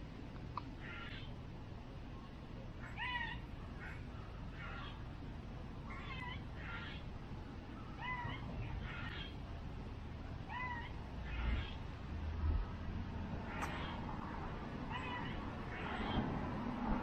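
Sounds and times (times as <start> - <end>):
animal calling: 7.8 - 9.4, 13.4 - 14.2, 14.9 - 16.3.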